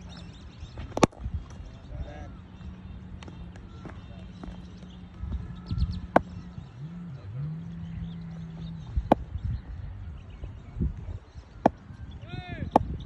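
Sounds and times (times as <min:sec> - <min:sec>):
cricket bat striking ball: 0:06.1 - 0:06.4, 0:09.0 - 0:09.3, 0:11.6 - 0:11.8, 0:12.7 - 0:13.0.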